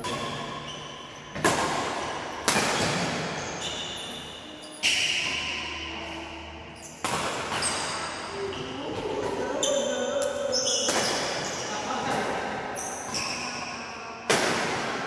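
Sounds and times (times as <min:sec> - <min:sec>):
rackets hitting shuttlecock: 0:00.0 - 0:05.6, 0:07.0 - 0:09.4, 0:10.2 - 0:13.4, 0:14.3 - 0:15.0.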